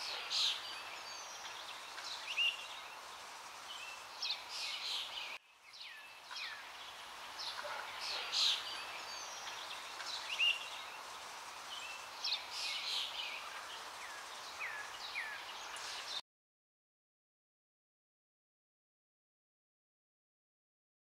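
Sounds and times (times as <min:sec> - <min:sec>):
birds chirping and whistling: 0:00.0 - 0:03.0, 0:03.6 - 0:11.0, 0:11.7 - 0:16.2
steady hiss: 0:00.0 - 0:16.2.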